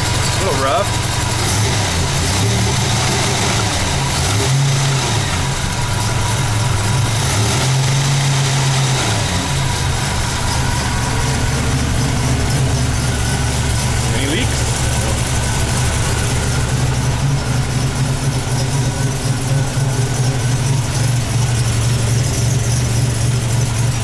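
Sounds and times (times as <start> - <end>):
car engine idling rough: 0.0 - 24.0.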